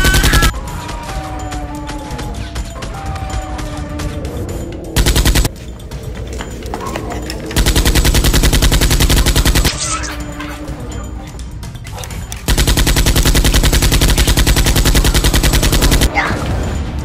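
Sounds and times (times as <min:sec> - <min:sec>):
automatic gunfire: 0:00.0 - 0:00.5, 0:05.0 - 0:05.5, 0:07.6 - 0:09.8, 0:12.5 - 0:16.1.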